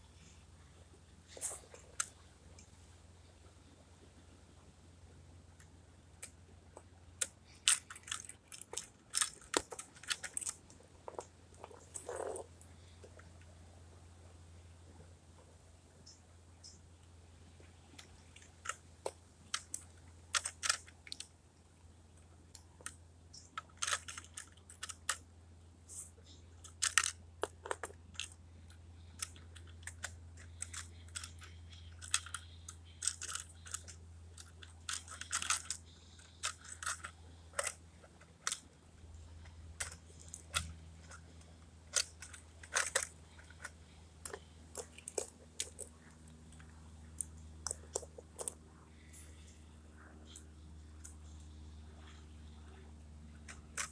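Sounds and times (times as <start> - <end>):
steady low hum: 0.0 - 53.9
plastic toy clicks and clacks: 7.2 - 12.4, 18.0 - 21.3, 22.5 - 25.2, 26.6 - 28.4, 29.1 - 38.6, 39.4 - 45.9, 47.2 - 48.6, 53.5 - 53.9.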